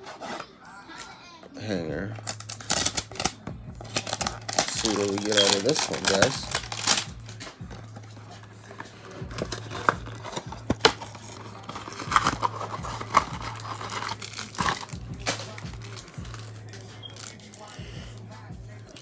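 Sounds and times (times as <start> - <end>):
cardboard box tearing: 2.3 - 7.1, 9.0 - 16.1.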